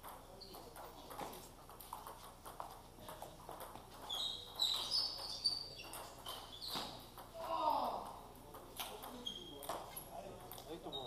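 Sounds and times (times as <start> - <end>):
table tennis balls clicking: 0.0 - 11.0
short high squeaks: 4.0 - 7.1, 9.2 - 9.7.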